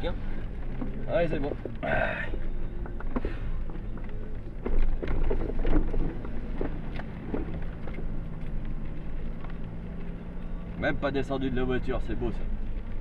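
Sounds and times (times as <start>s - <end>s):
car engine running steadily: 0.0s - 13.0s
vehicle knocks and thuds: 0.6s - 10.0s.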